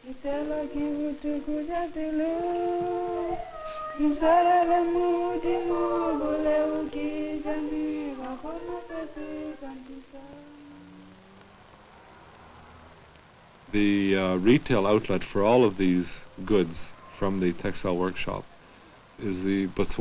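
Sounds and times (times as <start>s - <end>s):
woman singing slow melody: 0.0s - 11.3s.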